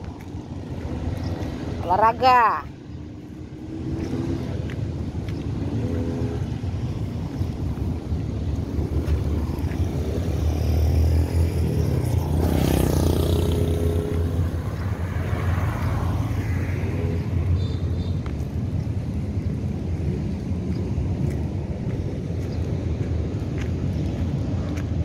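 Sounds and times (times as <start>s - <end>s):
low traffic rumble: 0.0s - 25.0s
vehicle passing by: 3.1s - 17.6s.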